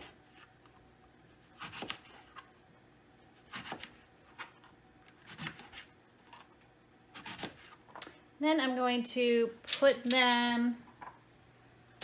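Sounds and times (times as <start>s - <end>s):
knife slicing on cutting mat: 1.4s - 2.2s, 3.4s - 4.0s, 5.2s - 5.9s, 7.2s - 7.8s.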